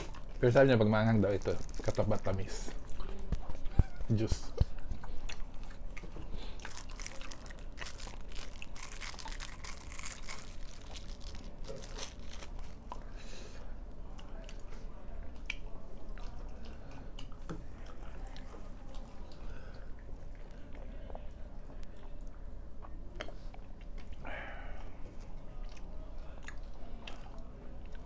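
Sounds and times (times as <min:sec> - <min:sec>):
plastic wrapper crinkling: 0:00.9 - 0:02.7, 0:06.6 - 0:12.9
chewing: 0:01.2 - 0:13.1, 0:14.1 - 0:24.2, 0:24.8 - 0:28.0.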